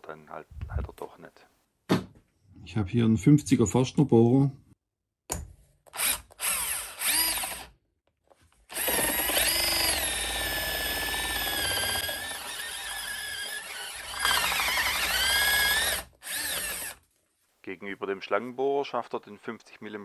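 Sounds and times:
rotary hammer drilling into wood: 0:05.9 - 0:07.8, 0:08.7 - 0:17.0.

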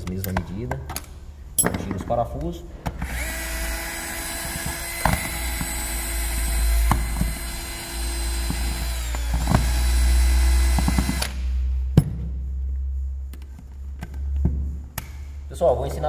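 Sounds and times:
electric screwdriver running: 0:03.0 - 0:11.4.

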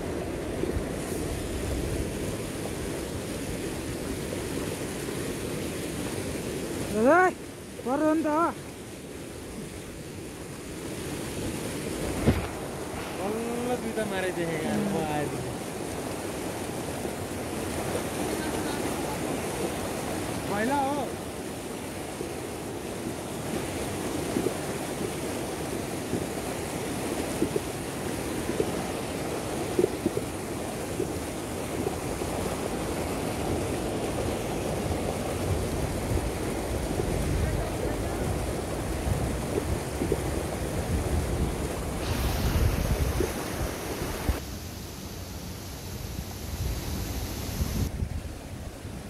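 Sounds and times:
river rushing over rapids: 0:00.0 - 0:49.0
wind buffeting microphone: 0:11.8 - 0:17.1, 0:30.8 - 0:44.4, 0:46.5 - 0:49.0.

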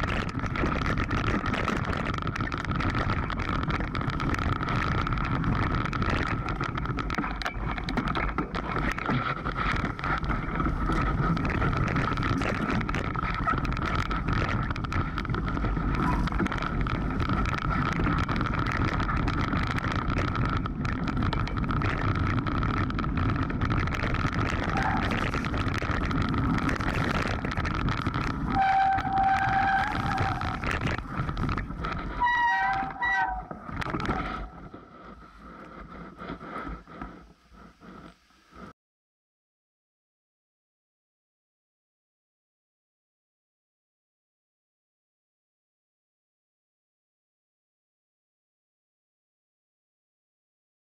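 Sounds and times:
bike clattering over bumps: 0:00.0 - 0:35.0
bike tyres crunching over stones: 0:00.0 - 0:37.2
wind on microphone: 0:00.0 - 0:38.7
short squeals: 0:32.2 - 0:34.6.

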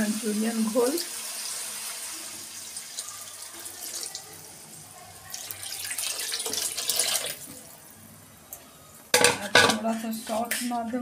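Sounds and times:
slurry pouring into wok: 0:01.0 - 0:07.5.

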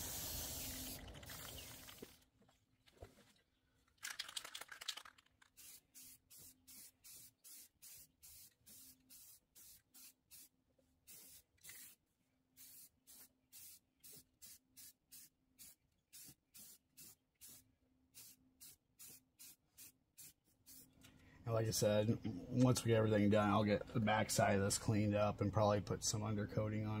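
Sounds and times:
spray bursts hissing on metal: 0:00.0 - 0:01.0, 0:05.6 - 0:10.5, 0:11.1 - 0:12.0, 0:12.6 - 0:17.6.

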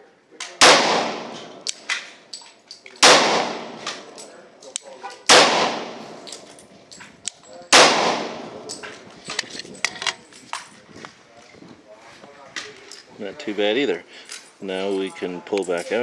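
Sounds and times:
pistol shots with ringing echo: 0:00.5 - 0:02.0, 0:03.0 - 0:04.3, 0:05.2 - 0:06.5, 0:07.7 - 0:08.8.

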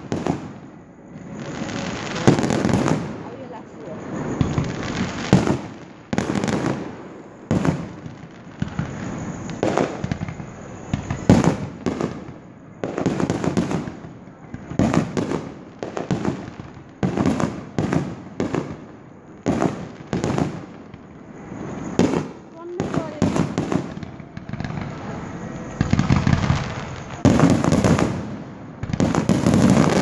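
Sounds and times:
firework shells bursting: 0:04.0 - 0:18.8, 0:19.4 - 0:30.0.

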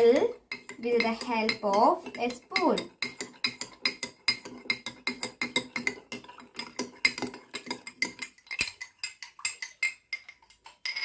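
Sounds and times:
spoon clinking against glass: 0:06.6 - 0:11.0.

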